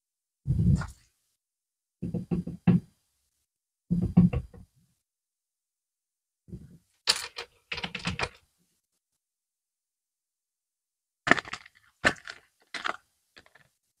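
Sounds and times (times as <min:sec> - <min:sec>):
plastic shoes clicking and rattling: 0:11.3 - 0:13.7.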